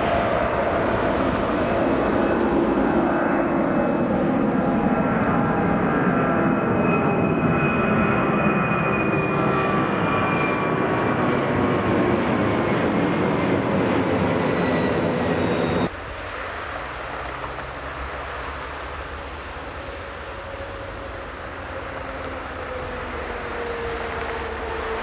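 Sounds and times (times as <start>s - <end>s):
jet engines passing overhead: 0.0s - 25.0s
plane approaching to land: 0.0s - 25.0s.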